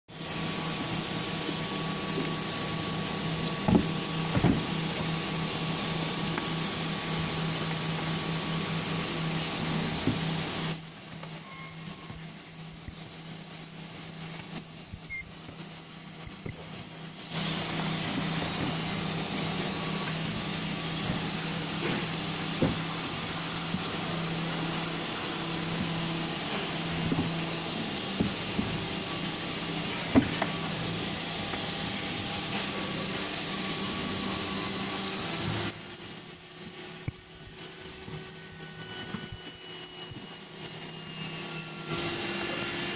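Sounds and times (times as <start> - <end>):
welding gun hissing: 0.2 - 32.2.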